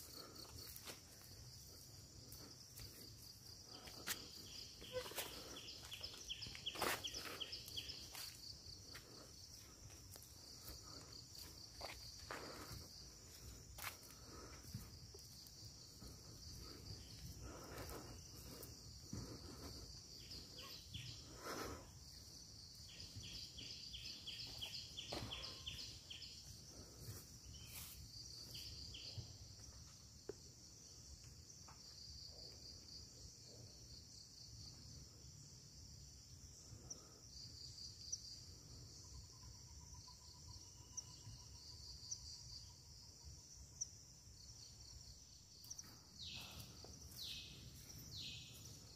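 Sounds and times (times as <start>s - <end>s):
insects chorus: 0.0s - 48.9s
footsteps: 2.2s - 20.6s.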